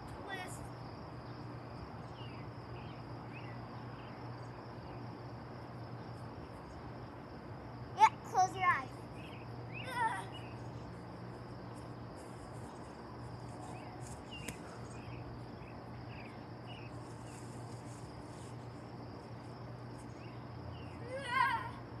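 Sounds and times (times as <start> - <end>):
insects chirping drone: 0.0 - 22.0.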